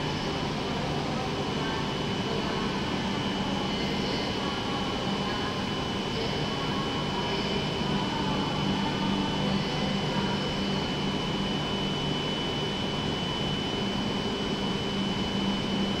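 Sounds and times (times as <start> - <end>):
high-pitched whine: 0.0 - 16.0.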